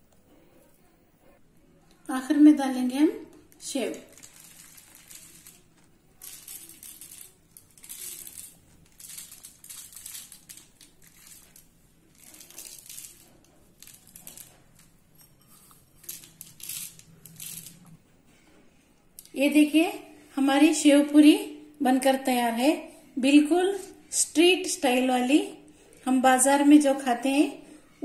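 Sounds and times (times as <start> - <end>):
crisp noodles crackling: 3.4 - 15.1, 15.8 - 17.9.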